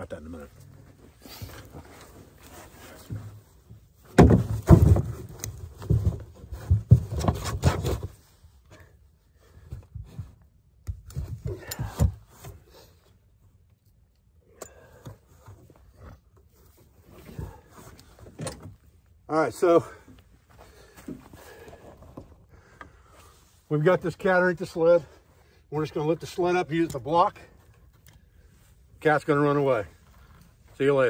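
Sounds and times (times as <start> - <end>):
plastic sled knocking and scraping: 2.5 - 8.4.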